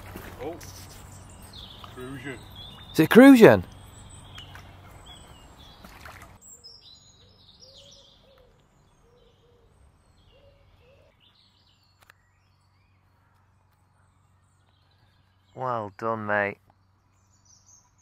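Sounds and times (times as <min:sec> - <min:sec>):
faint birdsong: 0:00.0 - 0:18.0
fish splashing in water: 0:05.7 - 0:06.4.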